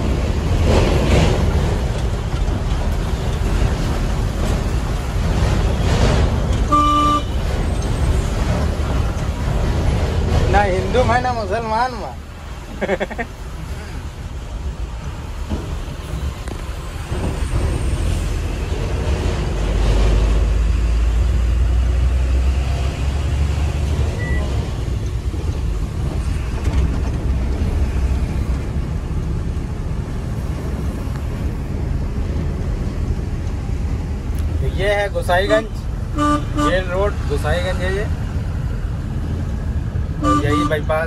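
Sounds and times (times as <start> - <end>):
road and wind noise: 0.0 - 41.0
truck diesel engine drone: 12.4 - 34.6.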